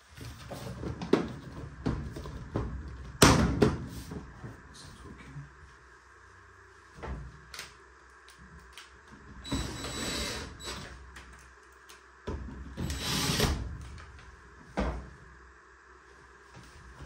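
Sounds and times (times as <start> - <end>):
cordless drill driving screws: 9.5 - 10.8, 12.8 - 13.6.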